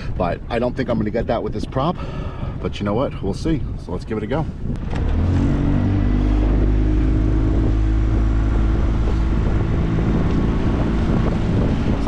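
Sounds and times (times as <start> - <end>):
outboard motor running hard: 4.6 - 12.0.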